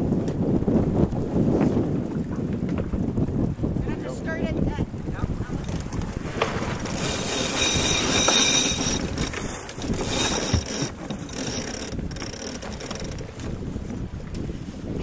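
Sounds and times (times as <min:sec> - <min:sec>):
winch ratcheting: 0:05.6 - 0:13.6.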